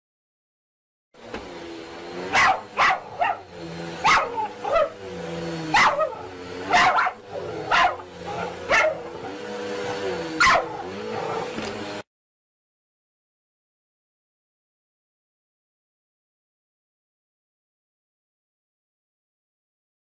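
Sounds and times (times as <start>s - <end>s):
vacuum cleaner motor hum: 1.2s - 12.1s
dog barking: 2.3s - 5.0s, 5.7s - 9.4s, 10.4s - 11.5s.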